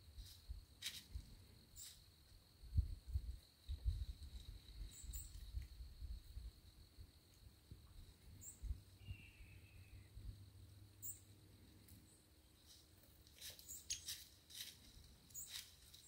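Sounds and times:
faint high chirps: 4.8 - 5.6, 7.9 - 12.8
dry leaves crackling: 12.6 - 16.0.

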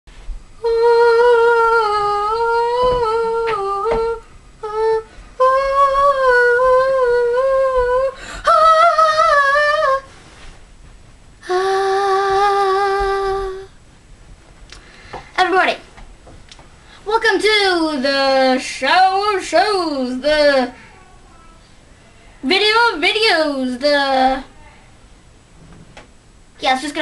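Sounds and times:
boy humming: 0.6 - 10.1, 11.4 - 13.8.

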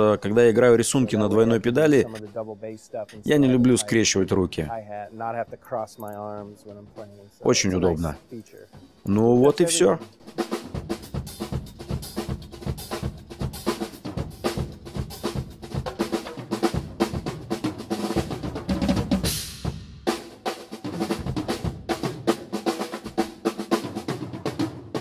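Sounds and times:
drum kit playing fast pattern: 6.8 - 8.3, 9.2 - 25.0
cymbal crash: 19.2 - 21.8.

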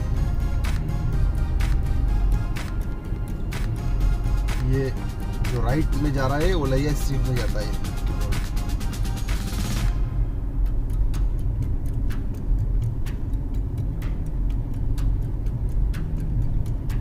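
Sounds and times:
low road rumble: 0.0 - 17.0
turn signal ticking: 0.0 - 17.0.

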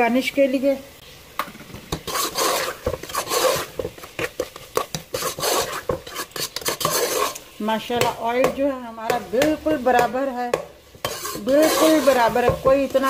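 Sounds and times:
metal spoon scraping steel pot: 1.9 - 7.5, 11.0 - 13.0.

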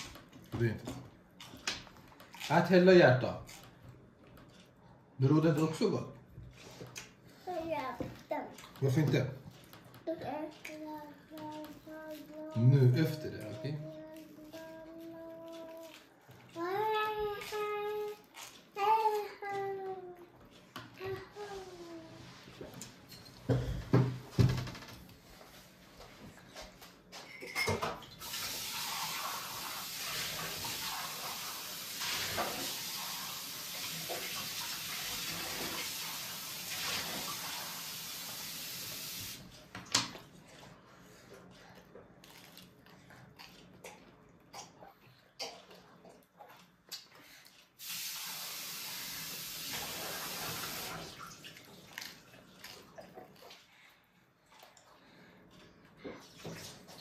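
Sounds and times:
water running from a tap: 28.1 - 39.5, 47.8 - 52.4.

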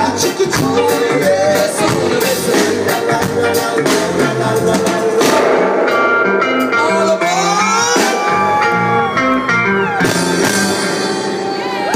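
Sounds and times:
guitar: 0.0 - 11.9
reggae band playing live: 0.0 - 11.9
drum hits: 1.9 - 8.5.

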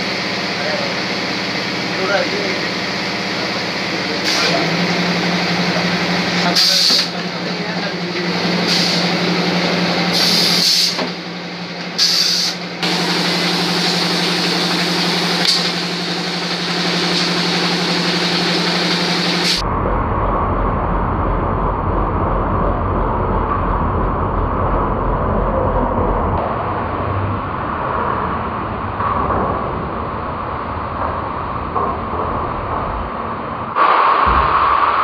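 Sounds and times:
machine motor hum: 0.0 - 26.5
short air hisses: 6.5 - 7.1, 8.6 - 9.2, 10.1 - 11.1, 12.0 - 14.0, 19.2 - 19.6.

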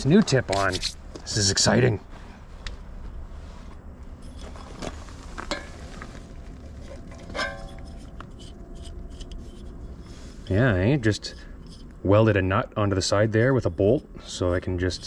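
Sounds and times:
faint low hum: 0.0 - 15.0
metal clinks and scrapes: 4.1 - 12.3.

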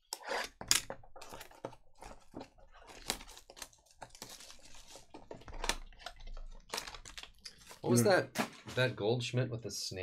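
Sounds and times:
plastic shrink wrap crinkling: 1.2 - 8.2.

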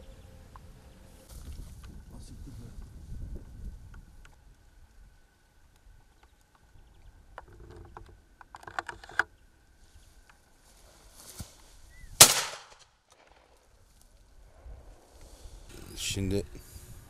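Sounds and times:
shotgun shot: 12.2 - 12.8.

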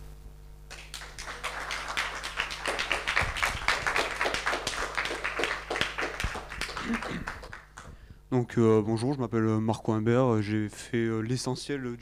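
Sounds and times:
audience applauding: 0.7 - 8.0.

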